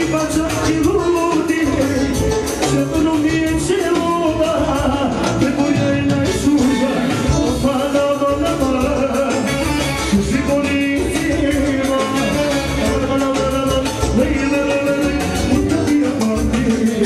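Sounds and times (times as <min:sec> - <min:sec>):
live band dance music: 0:00.0 - 0:17.0
steady drum beat: 0:00.0 - 0:17.0
saxophone melody: 0:04.3 - 0:16.4.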